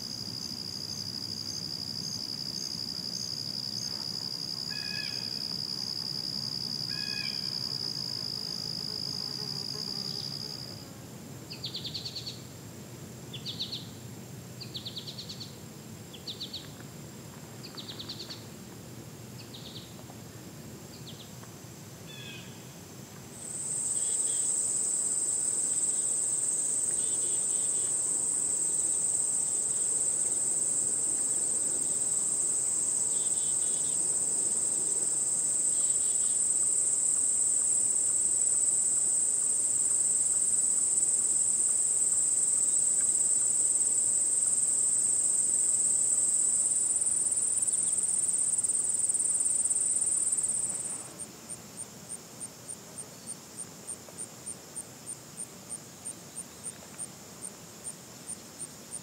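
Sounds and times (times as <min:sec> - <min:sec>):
high-pitched insect buzz: 0:00.9 - 0:10.9, 0:23.4 - 0:30.7.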